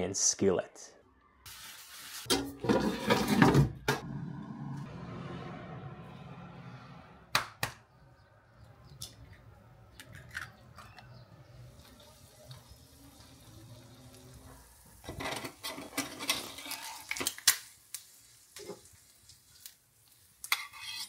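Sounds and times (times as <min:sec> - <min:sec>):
clatter and scraping: 0:02.3 - 0:04.1, 0:15.0 - 0:17.2
pan and utensils clinking: 0:15.0 - 0:17.4.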